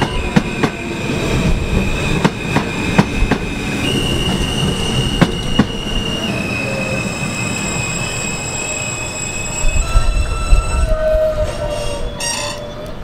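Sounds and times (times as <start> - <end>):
rumble of wheels on rail: 0.0 - 13.0
train wheels squealing: 0.0 - 13.0
sharp wheel screech: 3.8 - 12.9.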